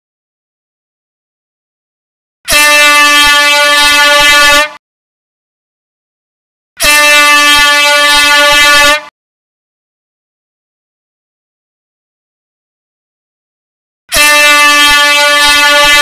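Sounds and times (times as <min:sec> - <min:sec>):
air horn blasts: 0:02.5 - 0:04.8, 0:06.8 - 0:09.1, 0:14.1 - 0:16.0.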